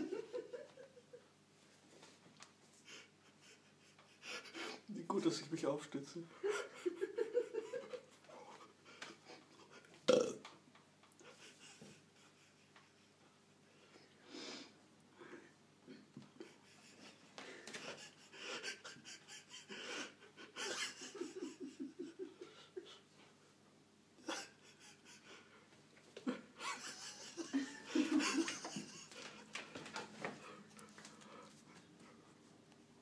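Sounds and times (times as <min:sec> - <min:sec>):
person laughing breathily: 0:02.8 - 0:04.9, 0:11.2 - 0:23.3, 0:24.2 - 0:29.8.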